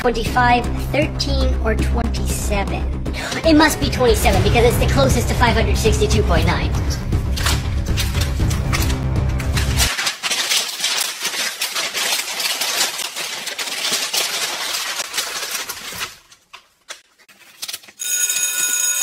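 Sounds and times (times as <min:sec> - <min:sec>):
steady tones: 0:00.6 - 0:09.9
paper sheets flipping and rustling: 0:07.1 - 0:18.0.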